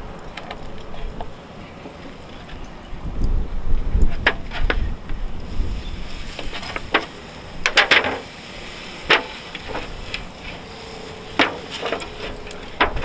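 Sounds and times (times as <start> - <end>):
meat slapping onto grill and sizzling: 5.4 - 13.0.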